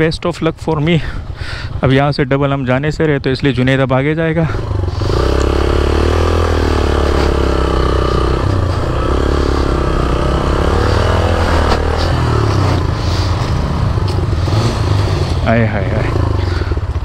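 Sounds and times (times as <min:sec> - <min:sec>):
motorcycle engine revving: 0:04.4 - 0:17.0.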